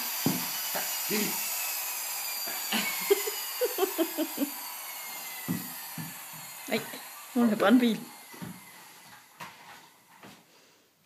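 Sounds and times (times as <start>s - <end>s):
child giggling: 2.7s - 4.6s.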